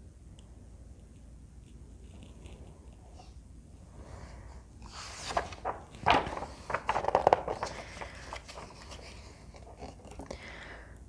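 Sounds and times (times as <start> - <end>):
book page turning: 4.9 - 10.2.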